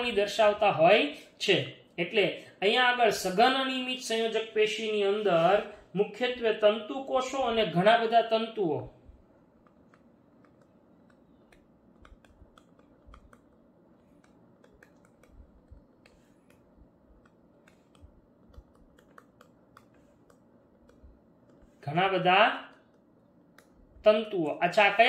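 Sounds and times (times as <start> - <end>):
low room noise: 0.0 - 25.0
stylus tapping on touchscreen: 9.5 - 21.8, 22.6 - 23.9.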